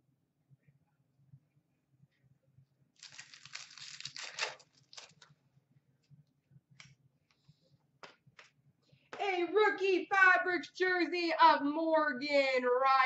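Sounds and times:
cards rustling and clicking: 3.0 - 5.3
wrapper tearing and crinkling: 3.0 - 5.3.

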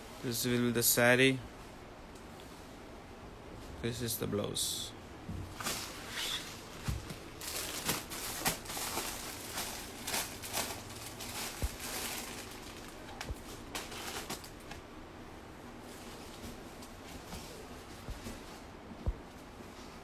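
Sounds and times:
plastic packets crinkling: 5.6 - 14.8.

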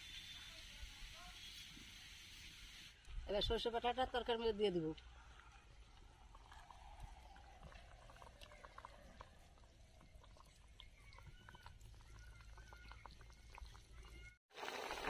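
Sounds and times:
curry bubbling in a pot: 5.1 - 15.0.

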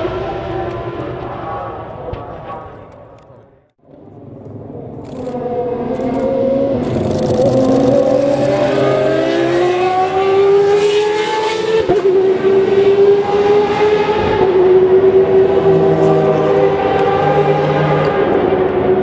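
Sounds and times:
race car engine accelerating: 4.7 - 19.0.

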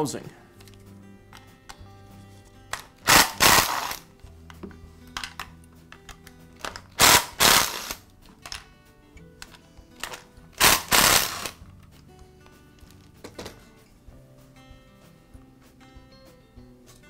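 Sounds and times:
cordless drill driving screws: 3.1 - 4.0, 7.0 - 8.0, 10.6 - 11.6.

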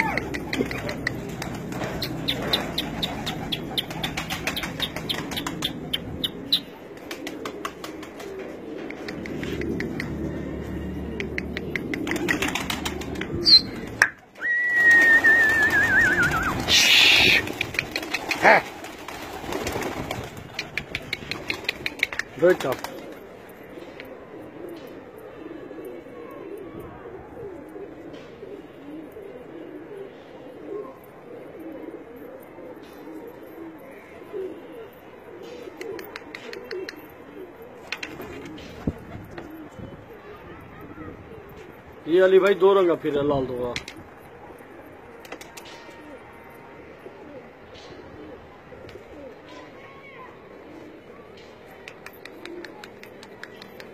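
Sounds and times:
wing flutters: 0.0 - 10.2, 11.3 - 23.3
pigeons cooing: 0.0 - 53.9
loud rush of wing flapping: 0.7 - 5.6, 11.9 - 14.0, 14.7 - 23.1.

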